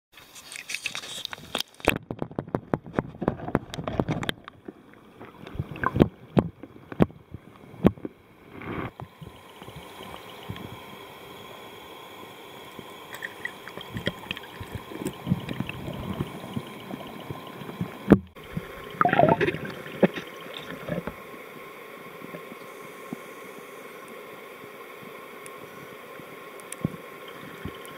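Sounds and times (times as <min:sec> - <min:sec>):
water splashing and lapping: 0:00.2 - 0:10.8, 0:12.8 - 0:21.3
muffled underwater hiss: 0:02.8 - 0:27.9.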